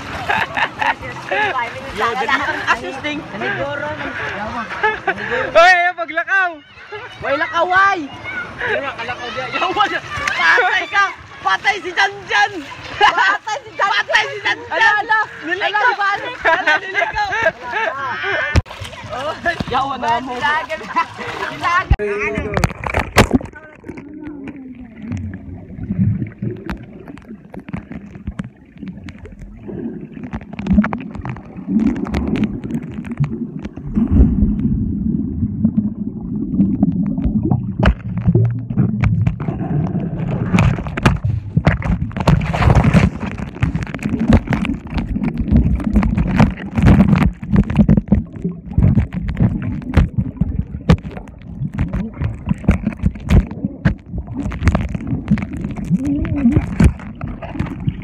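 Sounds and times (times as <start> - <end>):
underwater gurgling and sloshing: 0.0 - 5.6, 8.1 - 58.0
muffled underwater knocks: 30.2 - 34.7, 36.6 - 58.0.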